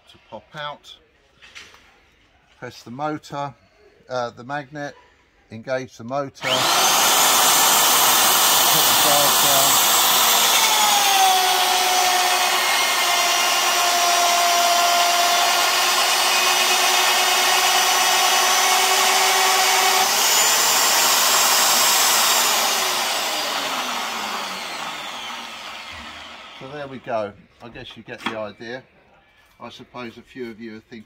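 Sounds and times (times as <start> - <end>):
magnetic drill motor cutting steel: 6.4 - 27.0.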